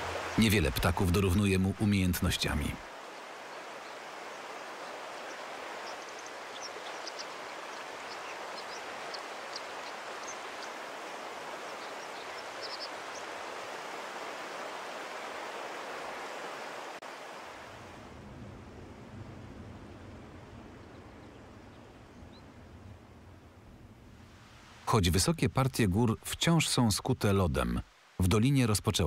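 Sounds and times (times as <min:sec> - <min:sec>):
stream rushing over rocks: 0:00.0 - 0:18.1
low steady hum: 0:17.7 - 0:26.6.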